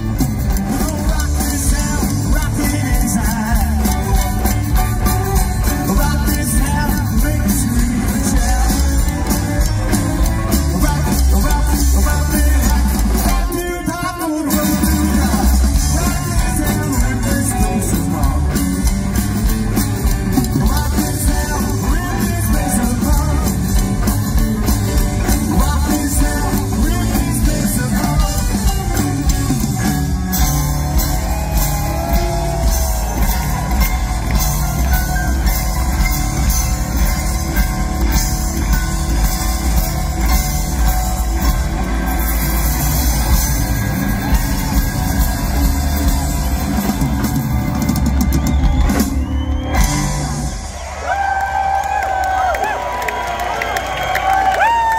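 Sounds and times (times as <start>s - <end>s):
rockabilly band playing: 0.0s - 54.9s.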